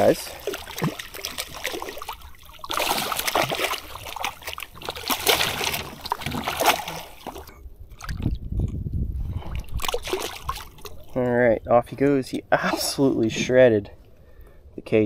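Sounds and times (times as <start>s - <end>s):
fish splashing at water surface: 0.0s - 8.2s, 9.6s - 11.2s.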